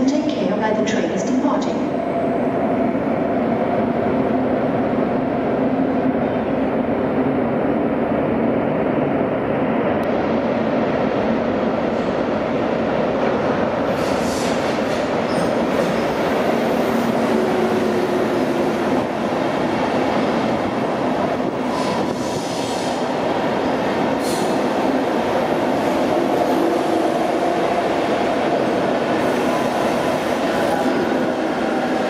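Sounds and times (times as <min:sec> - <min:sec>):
train wheels rumbling on rail: 0:00.0 - 0:32.0
train braking: 0:13.9 - 0:18.5, 0:21.6 - 0:24.7.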